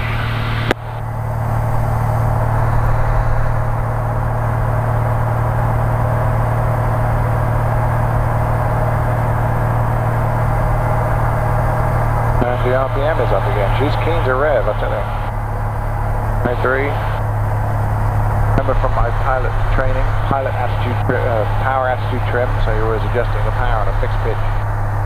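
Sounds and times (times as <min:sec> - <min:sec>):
propeller plane engine drone: 0:00.0 - 0:25.0.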